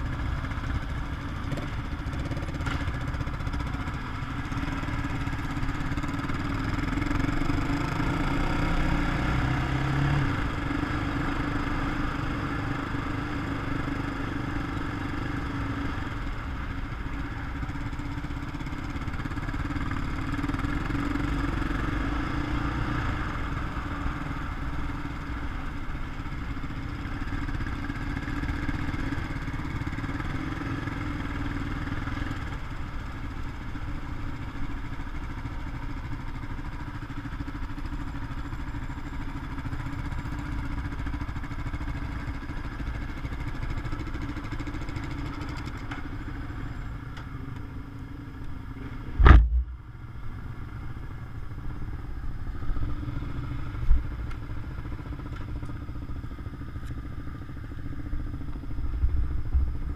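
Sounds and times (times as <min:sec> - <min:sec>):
quad bike engine running: 0:00.0 - 0:59.9
wind rumble on microphone: 0:58.9 - 0:59.9.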